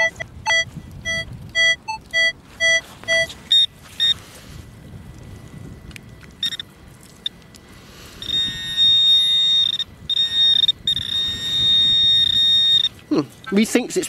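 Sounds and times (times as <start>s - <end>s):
pinpointer beep: 0.0s - 4.2s, 6.4s - 7.4s, 8.2s - 13.0s
continuous high-pitched tone: 0.0s - 14.0s
soil rustling: 0.0s - 14.0s.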